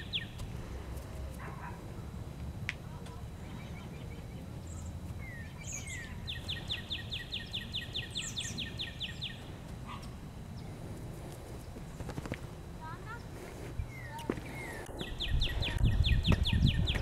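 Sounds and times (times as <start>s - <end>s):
songbird singing falling notes: 13.8s - 17.0s.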